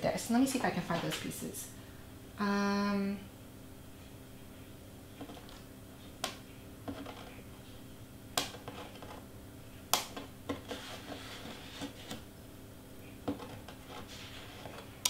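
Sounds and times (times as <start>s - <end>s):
faint room hum: 0.0s - 15.0s
soft paper rustling: 13.4s - 15.0s.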